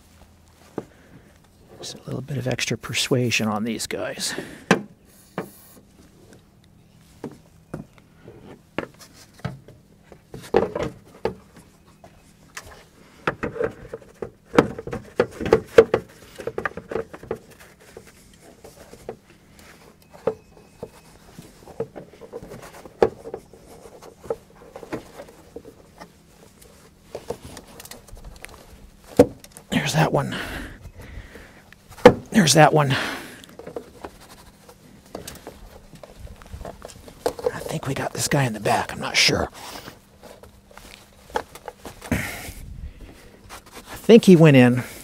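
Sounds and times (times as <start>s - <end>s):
plastic housing knocks and clunks: 8.8s - 11.5s, 13.2s - 18.0s.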